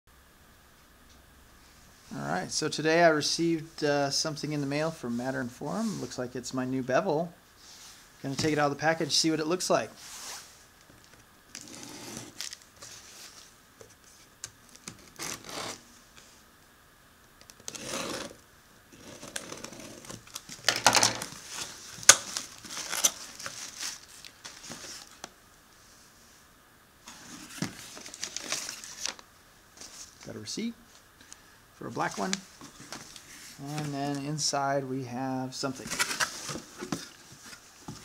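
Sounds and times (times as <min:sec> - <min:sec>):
packing tape tearing off box: 0:11.5 - 0:13.0, 0:14.4 - 0:15.8, 0:17.4 - 0:25.3, 0:27.1 - 0:29.2.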